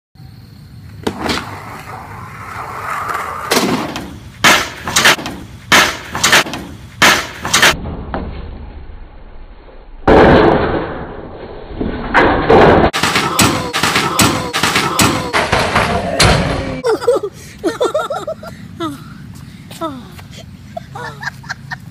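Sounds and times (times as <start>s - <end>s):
skateboard wheels rolling: 0.8s - 5.6s
skateboard grinding scrape: 1.1s - 4.3s.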